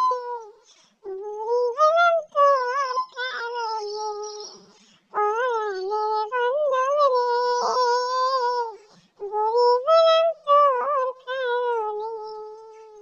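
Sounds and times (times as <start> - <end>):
high-pitched wavering voice: 0.0 - 6.3.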